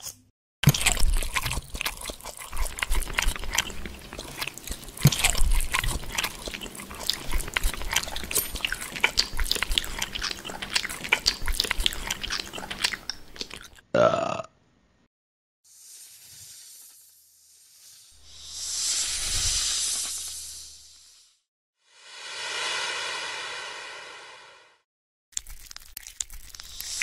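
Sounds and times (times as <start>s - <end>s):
fork stirring food in metal bowl: 0.0s - 13.6s.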